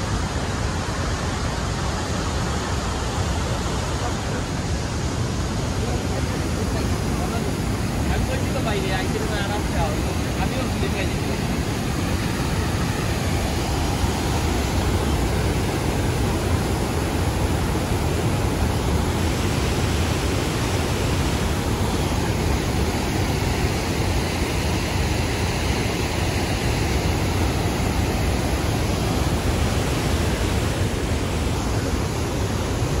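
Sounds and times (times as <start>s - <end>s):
water rushing over rocks: 0.0s - 33.0s.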